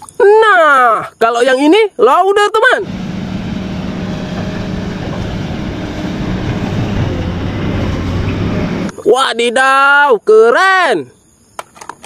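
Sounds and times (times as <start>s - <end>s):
diesel engine drone: 2.8s - 8.9s
plow blade pushing snow: 2.8s - 8.9s.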